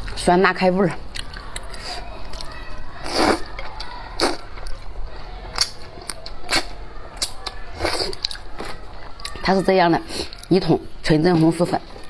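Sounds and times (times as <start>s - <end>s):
person slurping noodles: 3.0s - 3.5s, 4.2s - 4.4s, 7.8s - 8.3s.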